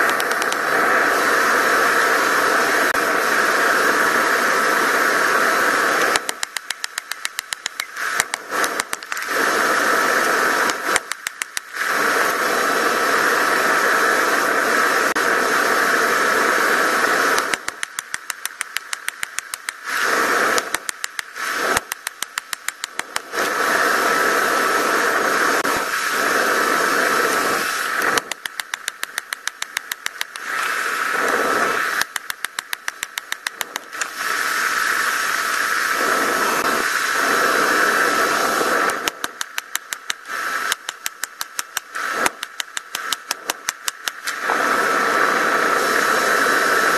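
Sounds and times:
rapid clicking: 0.0s - 0.8s, 5.6s - 12.0s, 17.2s - 23.5s, 27.9s - 34.2s, 38.7s - 44.5s.

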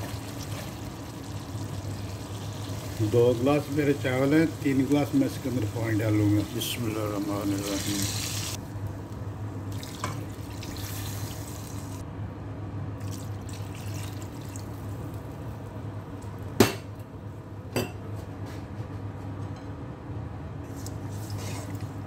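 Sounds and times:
water pouring into a pot: 0.0s - 8.6s, 9.7s - 12.0s, 13.0s - 15.0s.

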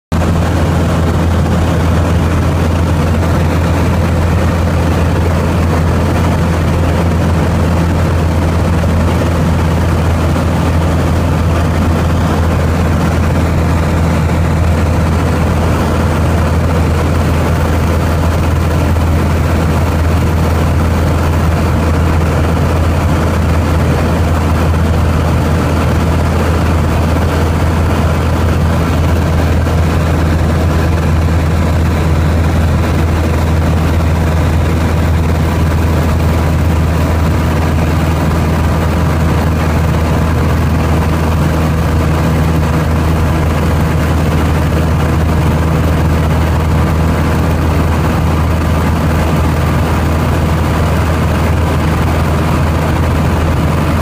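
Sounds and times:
airplane engine drone: 0.0s - 54.0s.

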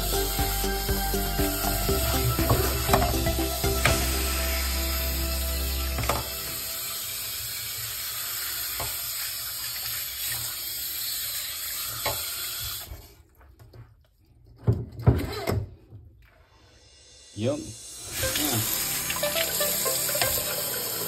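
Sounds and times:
water running from faucet into sink: 0.0s - 12.9s, 17.9s - 21.0s.

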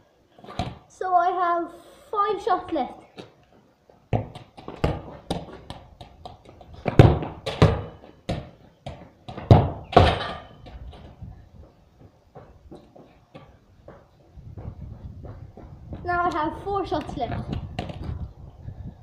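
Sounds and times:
football bouncing on concrete: 0.4s - 0.8s, 4.1s - 16.4s, 17.0s - 18.2s.

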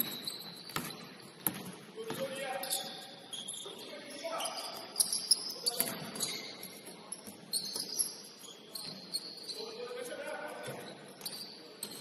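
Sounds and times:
basketball bouncing: 0.0s - 2.3s
sneakers squeaking on hardwood: 0.0s - 9.8s, 10.6s - 12.0s.

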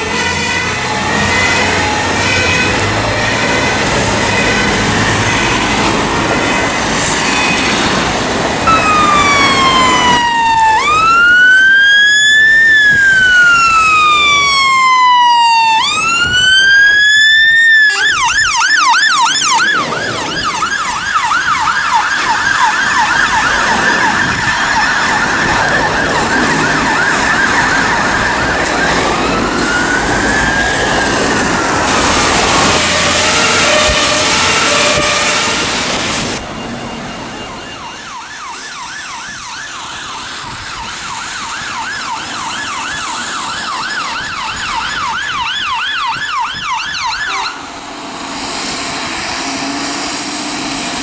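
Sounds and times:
fire engine siren wailing and yelping: 0.0s - 51.0s
road traffic noise: 0.0s - 51.0s.

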